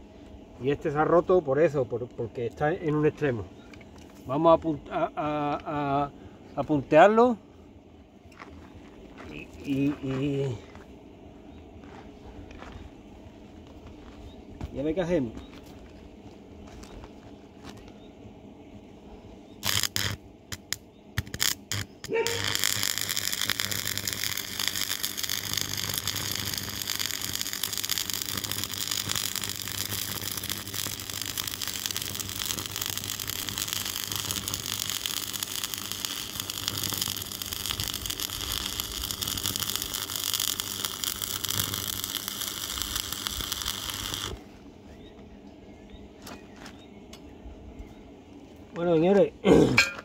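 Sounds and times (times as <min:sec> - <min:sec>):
low steady hum: 0:00.0 - 0:50.0
welding arc crackling: 0:19.6 - 0:44.4.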